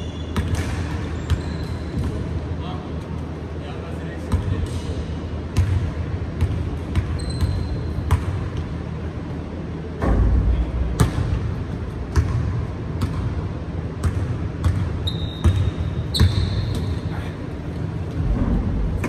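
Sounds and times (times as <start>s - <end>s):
sneaker squeak: 0.0s - 2.2s, 7.0s - 8.2s, 14.6s - 17.3s.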